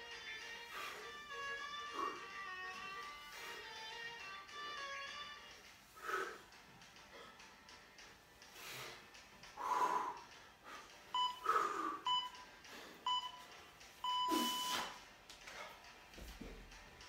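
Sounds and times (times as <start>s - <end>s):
heavy breathing: 0.6s - 3.8s, 5.9s - 13.1s, 14.3s - 16.1s
electronic timer beeps: 11.2s - 12.4s, 13.0s - 15.0s.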